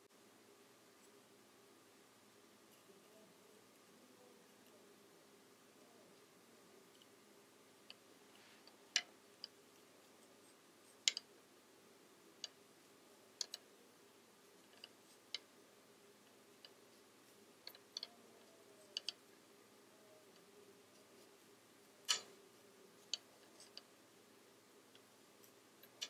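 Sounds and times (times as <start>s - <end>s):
wooden knitting needles clicking: 6.9s - 7.2s, 7.8s - 11.3s, 12.3s - 12.6s, 13.2s - 13.7s, 14.6s - 15.5s, 16.2s - 19.4s, 22.0s - 22.4s, 23.0s - 23.9s, 24.8s - 26.0s.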